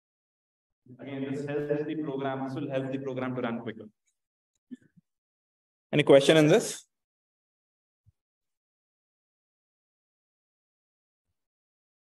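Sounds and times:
man speaking: 0:00.9 - 0:03.9, 0:06.0 - 0:06.9.

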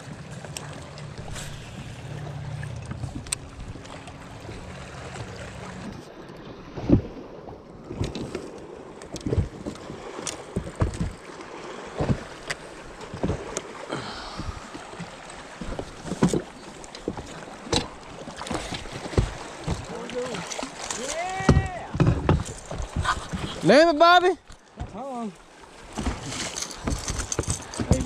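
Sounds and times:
trolling motor clunks: 0:00.1 - 0:07.2, 0:12.0 - 0:23.5
knocks and thumps on boat deck: 0:09.1 - 0:11.3, 0:11.9 - 0:13.6, 0:14.2 - 0:23.9, 0:24.7 - 0:25.0, 0:25.9 - 0:28.0.

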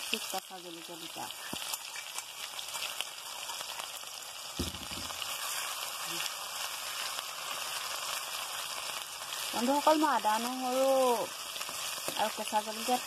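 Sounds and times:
food sizzling in hot oil: 0:00.0 - 0:13.0
dull thump: 0:04.6 - 0:05.1.

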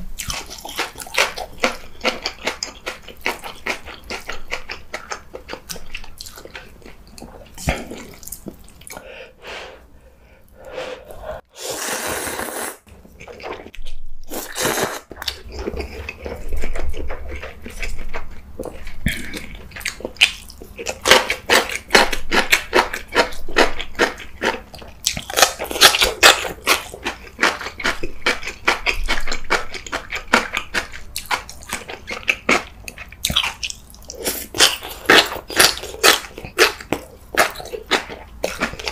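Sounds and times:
wet chewing and crunching: 0:00.0 - 0:09.0, 0:12.9 - 0:38.9
noodles slurping: 0:11.3 - 0:13.7.

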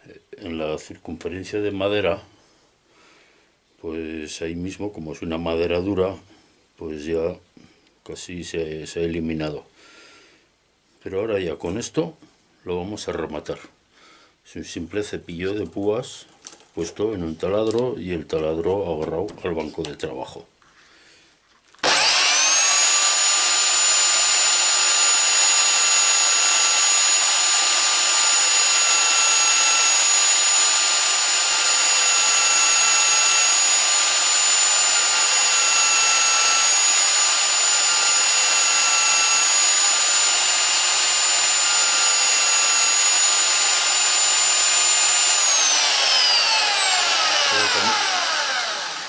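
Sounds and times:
drill spinning down: 0:21.8 - 0:49.0
electric drill whining: 0:21.8 - 0:49.0.

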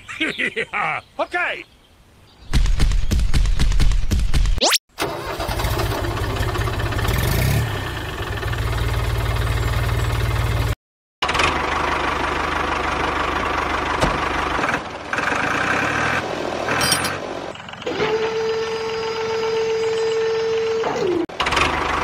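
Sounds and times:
tractor engine running: 0:05.0 - 0:22.0.

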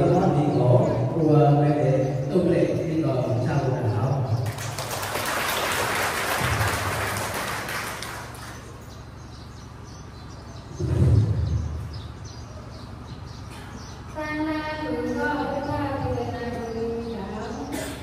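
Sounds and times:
seated crowd in large hall: 0:00.0 - 0:09.5
steady low hum: 0:06.0 - 0:18.0.

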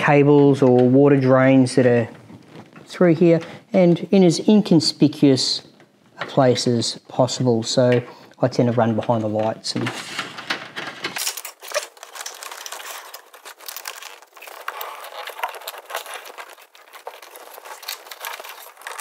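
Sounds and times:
cable and plastic parts rustling: 0:01.7 - 0:03.5, 0:08.8 - 0:19.0.

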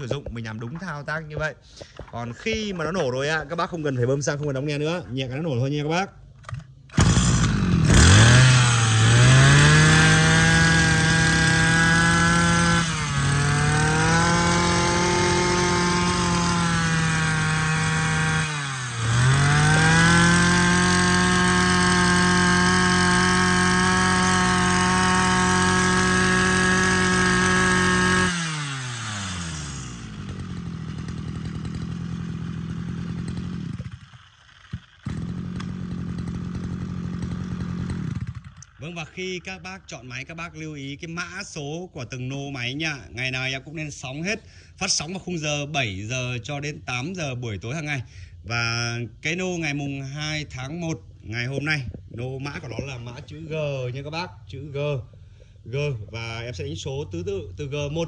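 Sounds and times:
brush-cutter engine revving: 0:06.4 - 0:40.4.

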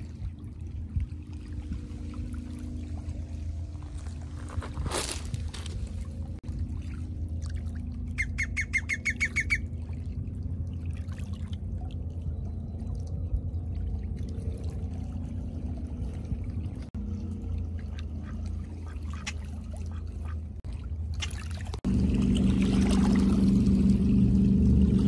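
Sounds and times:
small waves lapping: 0:00.0 - 0:25.0
steady low rumble: 0:00.0 - 0:25.0
bird high calls: 0:08.1 - 0:09.7.

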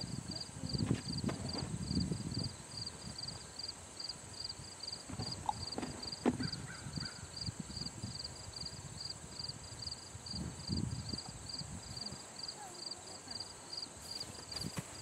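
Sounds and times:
low scuffing on sand: 0:14.0 - 0:15.0.

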